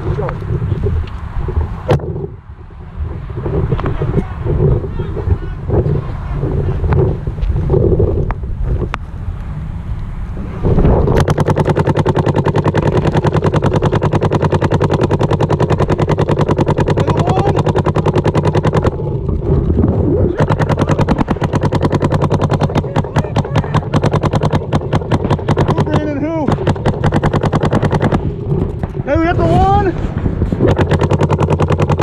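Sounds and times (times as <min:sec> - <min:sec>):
paintball marker rapid shots: 0:11.0 - 0:19.1, 0:20.3 - 0:32.0.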